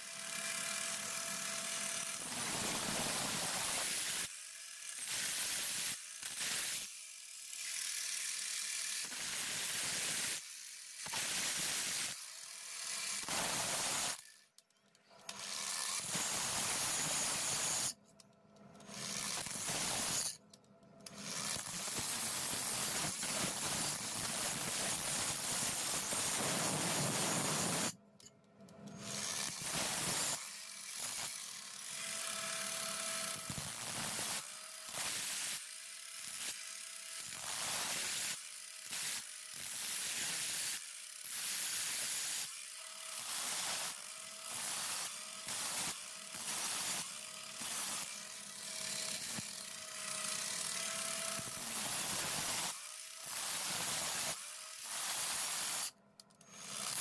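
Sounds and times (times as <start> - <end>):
angle grinder cutting steel: 15.3 - 18.0, 18.8 - 28.0, 29.0 - 57.0.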